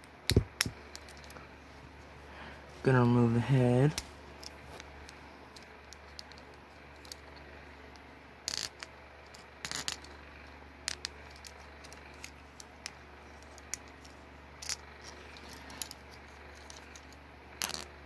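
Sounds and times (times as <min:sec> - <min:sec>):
plastic toy bricks clicking: 0:05.6 - 0:07.4, 0:08.4 - 0:10.2, 0:10.8 - 0:17.9.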